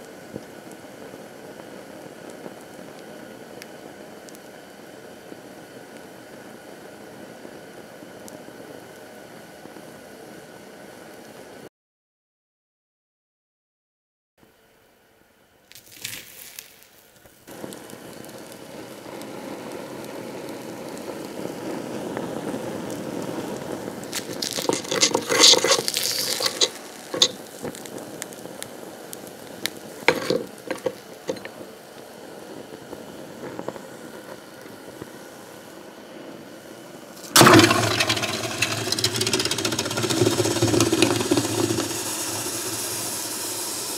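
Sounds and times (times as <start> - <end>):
glitter sizzling and crackling: 15.9 - 31.8, 37.2 - 43.9
metal tongs scraping a bowl: 24.4 - 27.4.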